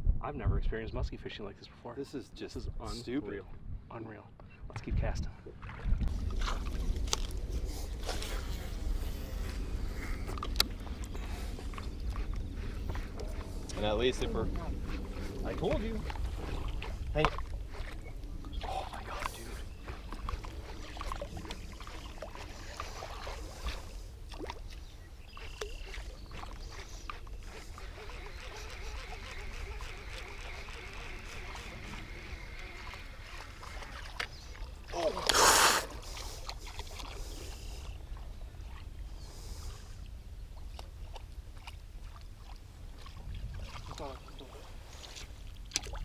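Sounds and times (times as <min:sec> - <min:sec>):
wind rumble on microphone: 0:00.0 - 0:01.6, 0:02.4 - 0:25.4, 0:36.3 - 0:46.0
water splashing against boat: 0:05.5 - 0:38.9, 0:40.6 - 0:46.0.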